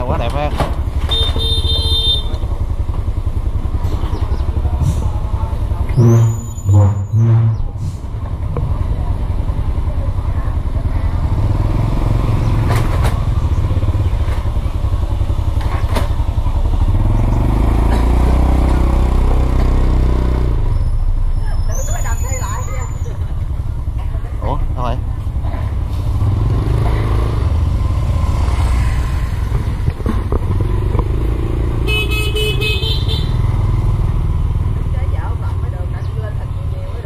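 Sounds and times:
vehicle engines rumbling: 0.0 - 37.0
loud pitched horn blasts: 1.1 - 2.4, 5.9 - 7.8, 31.8 - 33.4.

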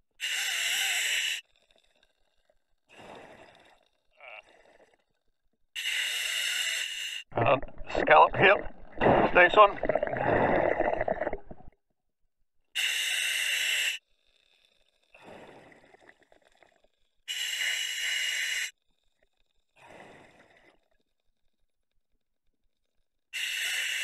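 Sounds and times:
scuba regulator inhalation hiss: 0.2 - 1.5, 5.8 - 7.3, 12.8 - 14.8, 17.3 - 18.8, 23.4 - 24.0
diver exhaling: 5.8 - 11.7.

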